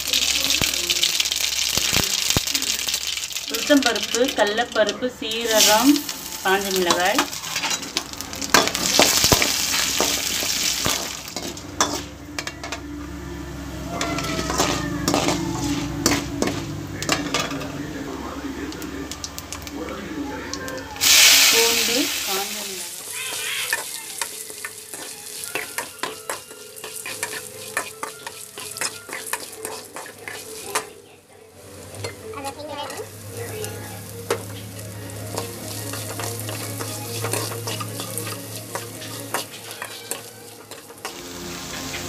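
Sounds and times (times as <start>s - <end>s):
onions sizzling in hot oil: 0.0s - 42.0s
spatula scraping pan: 5.4s - 12.6s, 14.0s - 17.6s, 21.1s - 31.0s, 31.9s - 42.0s.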